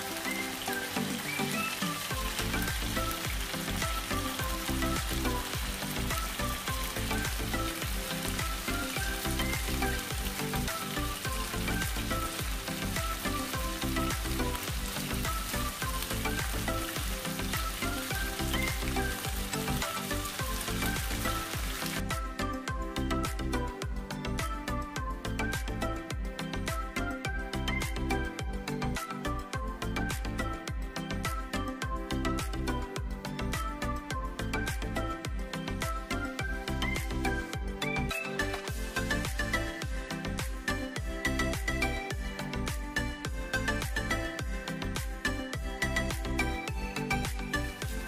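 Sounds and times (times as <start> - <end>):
chicken sizzling in frying pan: 0.0 - 22.0
background music with low beat: 0.0 - 48.0.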